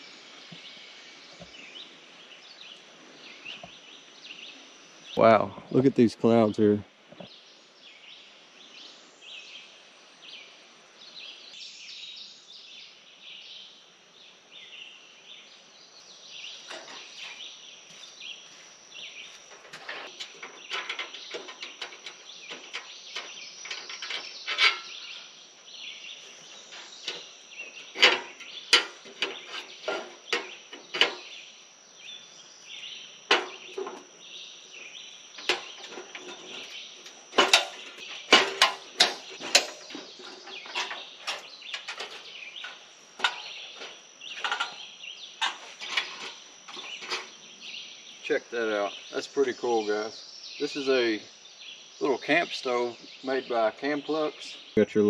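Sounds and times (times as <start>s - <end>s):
birds in trees: 0.0s - 55.0s
insects chirring: 0.0s - 55.0s
camp stove clicks and clanks: 19.5s - 25.2s, 26.7s - 31.3s, 33.3s - 34.0s, 35.4s - 47.4s.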